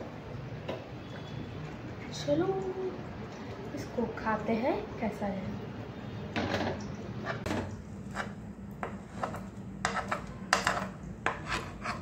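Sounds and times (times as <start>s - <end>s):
metal spoon scraping a frying pan: 7.2s - 12.0s.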